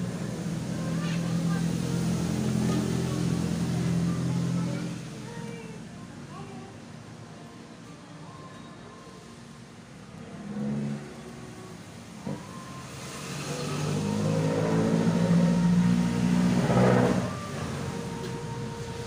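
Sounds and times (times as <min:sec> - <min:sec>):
vehicle engine passing by: 0:00.0 - 0:05.3, 0:10.2 - 0:19.0.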